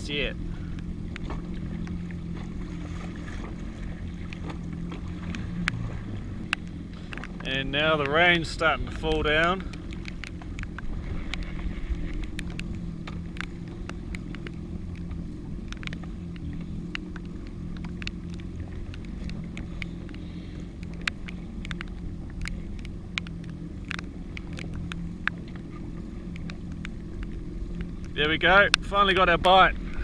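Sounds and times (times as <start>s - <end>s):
jet ski engine idling: 0.0s - 30.0s
sharp ticks: 9.0s - 28.9s.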